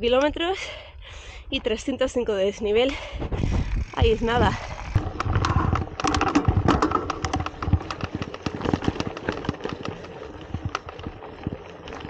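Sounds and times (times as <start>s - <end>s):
bike rattling and knocking: 3.1s - 12.0s
bike tyres on gravel: 3.4s - 12.0s.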